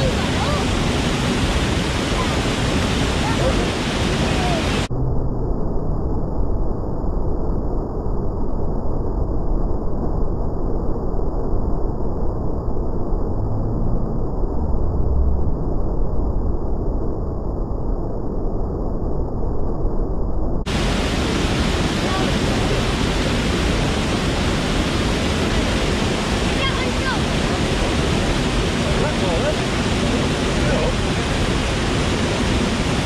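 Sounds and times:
waterfall rushing water: 0.0s - 4.9s, 20.7s - 33.0s.

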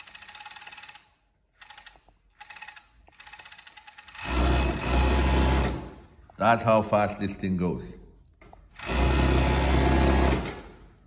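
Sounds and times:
overlock sewing machine stitching: 1.6s - 6.0s, 8.7s - 10.8s.

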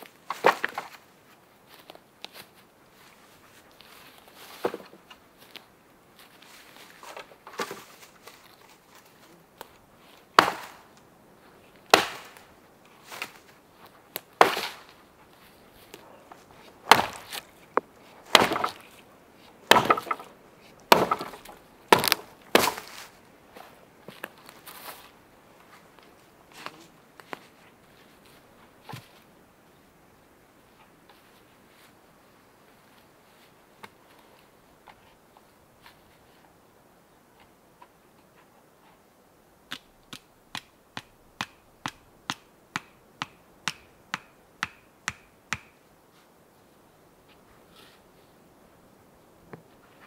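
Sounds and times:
wood being struck: 11.9s - 12.4s, 16.9s - 17.4s, 18.3s - 18.8s, 19.7s - 20.3s, 20.9s - 22.9s, 40.1s - 45.8s.

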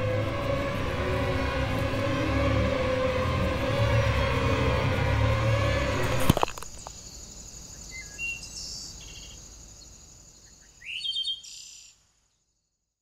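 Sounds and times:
music: 0.0s - 6.4s
high insect drone: 0.0s - 11.0s
bird chirps: 6.7s - 12.0s.

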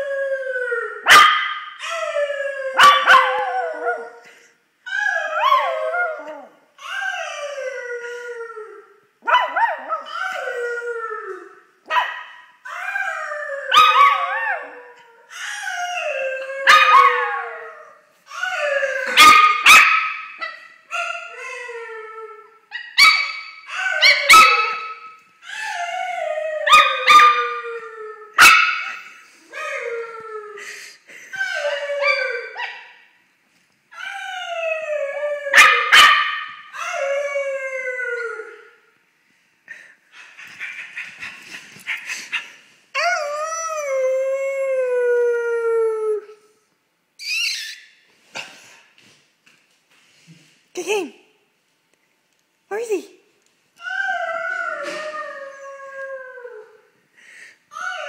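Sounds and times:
dog barking: 1.1s - 1.6s, 9.3s - 9.8s, 19.2s - 20.2s, 35.6s - 36.4s.

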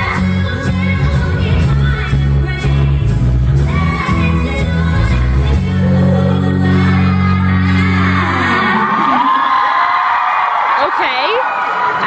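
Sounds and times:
female vocal group singing in harmony: 0.0s - 9.2s
musical accompaniment: 0.0s - 9.3s.

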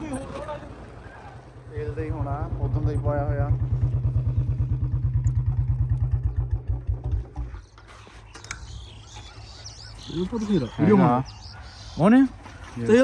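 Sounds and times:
motorcycle engine running: 1.7s - 11.6s.

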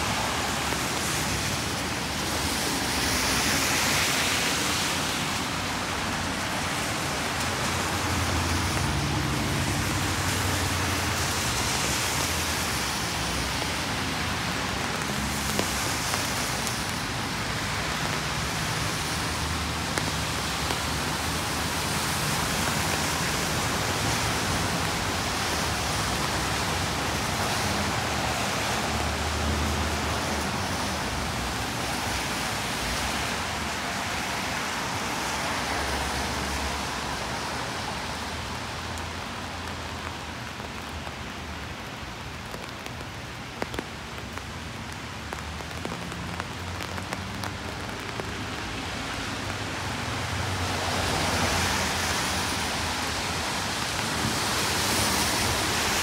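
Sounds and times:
low traffic rumble: 0.0s - 56.0s
rain hissing on a street: 0.0s - 56.0s
raindrops tapping: 10.9s - 33.6s, 38.8s - 49.8s.

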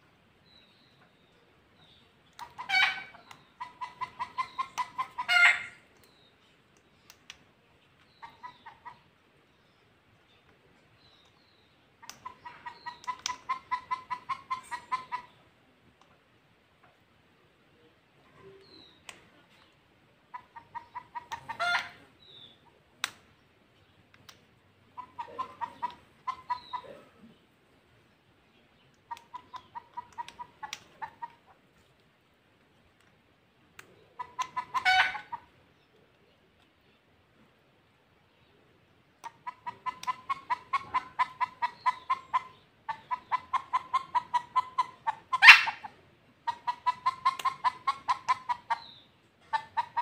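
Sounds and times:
parakeet mimicking clucks: 2.3s - 5.9s, 8.1s - 9.1s, 12.0s - 15.4s, 20.3s - 22.2s, 24.9s - 27.2s, 29.0s - 31.6s, 33.9s - 35.6s, 39.2s - 50.0s.

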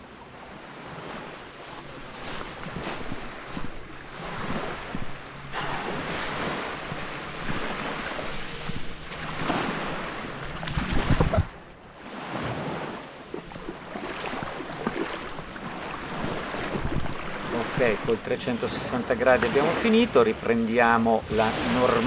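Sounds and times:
small waves washing on beach: 0.0s - 22.0s
wind buffeting microphone: 1.6s - 11.7s, 13.4s - 18.6s.

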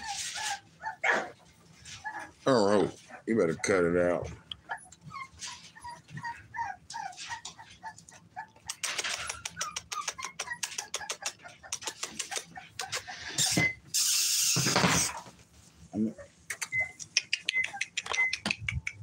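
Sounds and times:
puppies scuffling: 0.0s - 13.9s
puppies squeaking and yipping: 0.0s - 15.4s, 16.1s - 19.0s.

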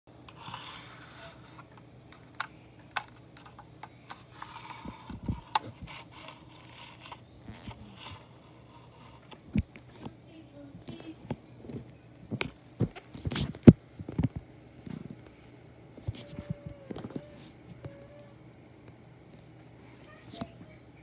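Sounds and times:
handling rubbing and scraping: 0.3s - 10.2s.

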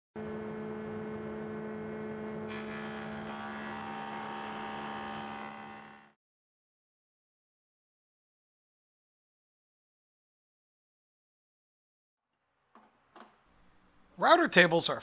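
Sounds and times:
router cutting wood: 0.2s - 6.2s
router motor whining: 0.2s - 6.2s.

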